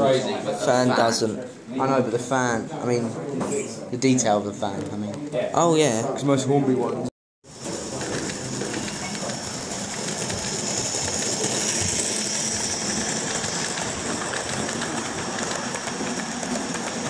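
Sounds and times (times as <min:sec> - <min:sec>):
model train motor whir: 0:07.5 - 0:17.0
wheels rattling on track: 0:07.5 - 0:17.0.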